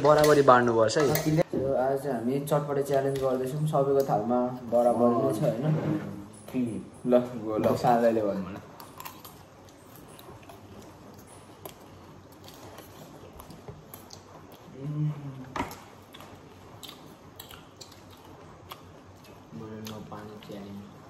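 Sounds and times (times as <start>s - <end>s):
chewing and crunching snack: 8.7s - 20.8s.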